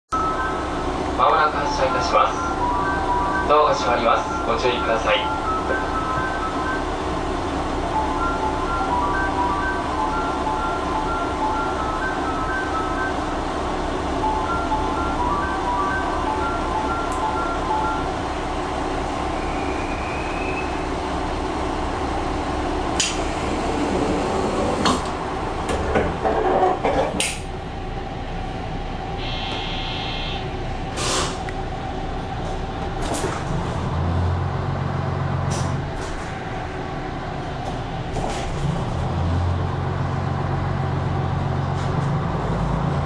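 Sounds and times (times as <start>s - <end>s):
diesel engine idling: 0.1s - 43.0s
air hisses from brakes: 29.2s - 30.2s, 31.0s - 31.5s
brief buzzing tone: 29.2s - 30.4s.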